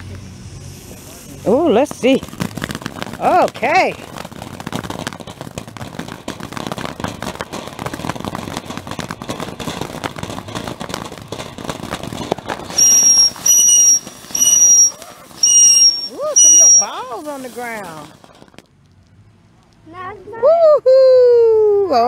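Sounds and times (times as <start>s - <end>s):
firework shrill whistles: 0.0s - 6.9s, 7.8s - 18.6s
firework crackling sparks: 0.0s - 20.6s.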